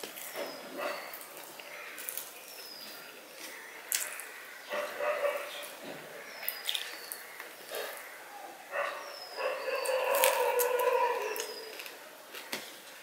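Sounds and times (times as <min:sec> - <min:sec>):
wet chewing: 0:09.6 - 0:12.6.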